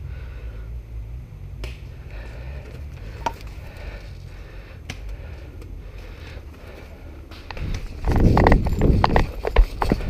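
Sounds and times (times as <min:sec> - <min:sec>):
low rumble: 0:00.0 - 0:10.0.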